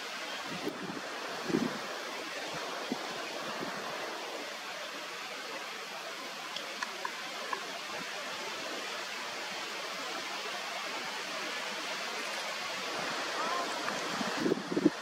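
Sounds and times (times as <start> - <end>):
wind on microphone: 0.0 - 4.5, 12.8 - 15.0.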